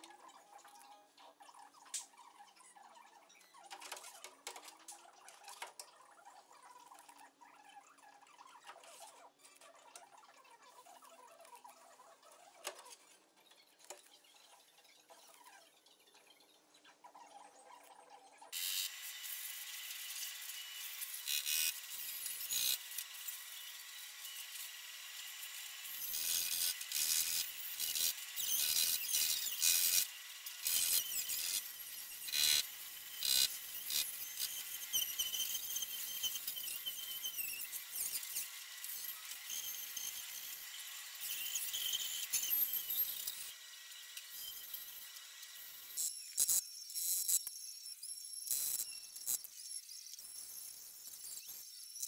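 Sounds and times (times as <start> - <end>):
welding torch flame hissing: 18.6 - 23.4.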